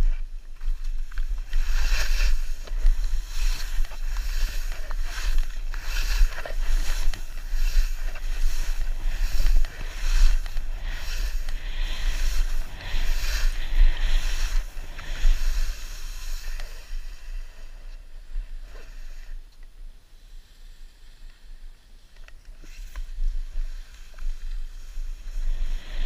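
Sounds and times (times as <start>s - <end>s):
wind buffeting microphone: 0.0s - 17.6s
skis hissing through snow: 0.0s - 26.0s.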